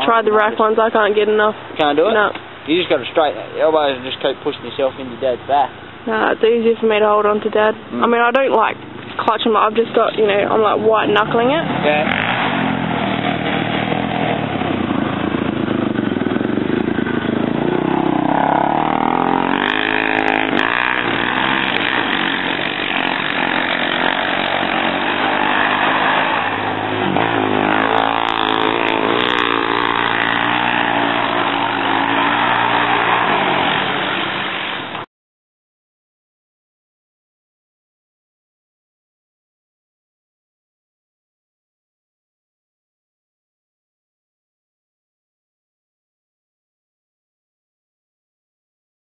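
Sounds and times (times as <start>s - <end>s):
quad bike engines revving: 0.0s - 35.0s.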